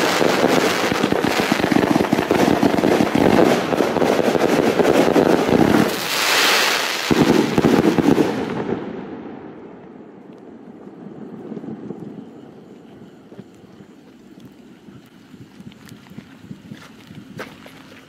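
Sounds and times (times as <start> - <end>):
hissing crackle: 0.0 - 8.6, 9.7 - 18.0
fireworks firing rapid shots: 0.0 - 9.0.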